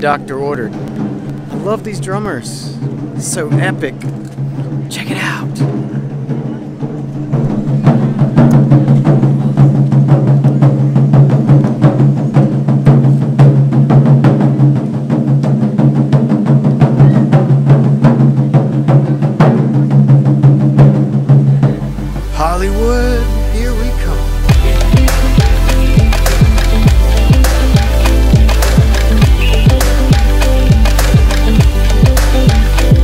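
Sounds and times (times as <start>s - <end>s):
taiko drums playing: 0.7s - 23.5s, 24.2s - 33.0s
background music: 21.6s - 33.0s.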